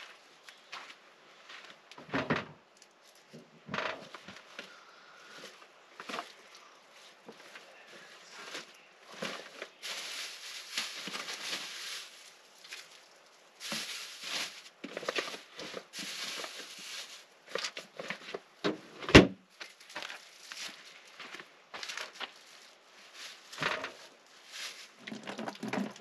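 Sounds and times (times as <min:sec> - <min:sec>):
plastic-wrapped food rustling: 0:05.3 - 0:18.5, 0:19.5 - 0:26.0.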